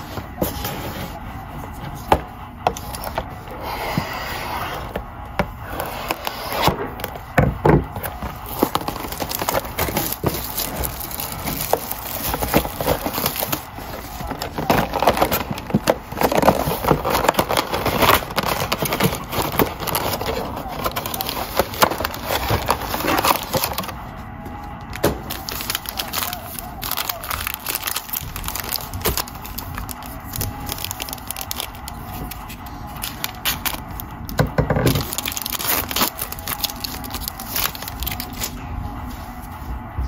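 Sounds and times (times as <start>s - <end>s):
cards shuffled and rubbed: 2.7s - 7.3s, 7.9s - 24.0s, 25.2s - 34.0s
plastic packaging crinkling: 4.8s - 24.1s, 24.8s - 39.6s.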